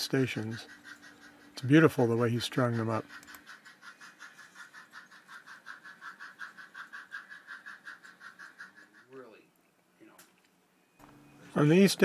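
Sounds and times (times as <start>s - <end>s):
model steam train running: 0.0s - 9.3s.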